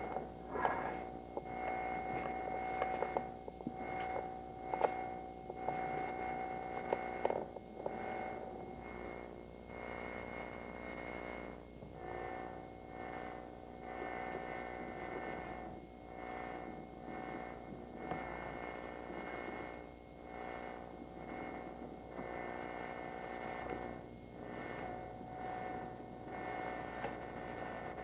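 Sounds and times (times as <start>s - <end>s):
synthesizer drone: 0.0s - 8.9s.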